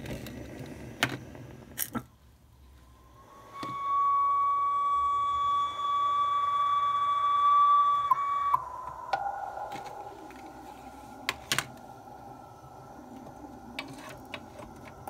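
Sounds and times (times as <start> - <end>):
steam locomotive whistle: 3.0 - 10.4.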